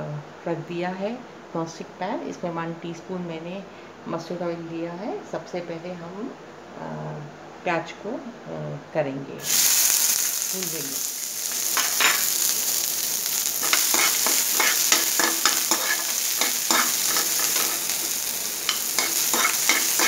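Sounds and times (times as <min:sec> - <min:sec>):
onions sizzling in oil: 0:09.4 - 0:20.0
spoon scraping and tapping pan: 0:11.8 - 0:12.3, 0:13.6 - 0:20.0.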